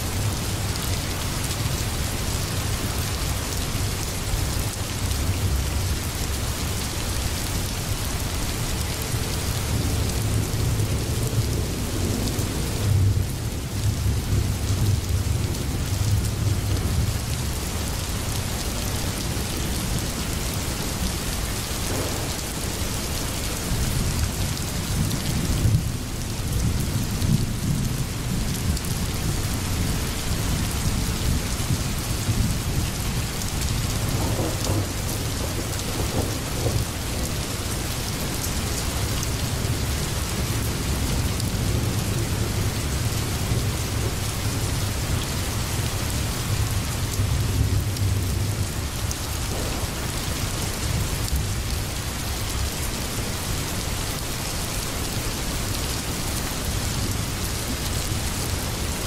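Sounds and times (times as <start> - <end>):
steady rain: 0.0 - 59.0
low rumbling thunder: 21.8 - 22.8, 33.9 - 37.4, 49.4 - 51.8.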